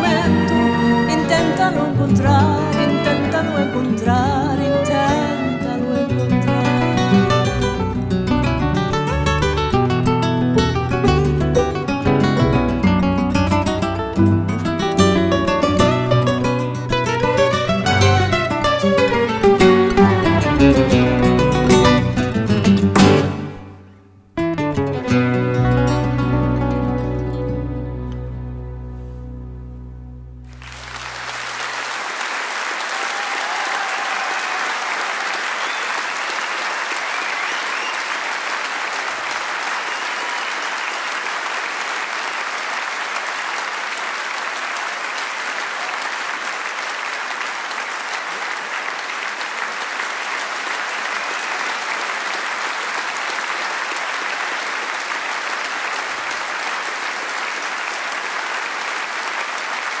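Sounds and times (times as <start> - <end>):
audience applauding: 6.2 - 12.5, 13.5 - 23.6, 30.4 - 60.0.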